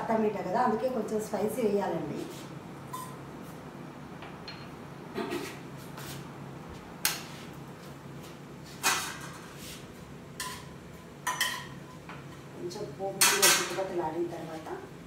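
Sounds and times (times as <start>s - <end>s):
metal spatula clanking on pan: 10.4s - 11.8s, 13.2s - 13.8s.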